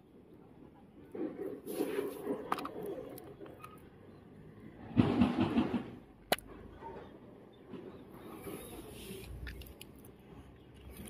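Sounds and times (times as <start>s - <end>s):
plastic sleeve rustling scrape: 1.6s - 2.5s.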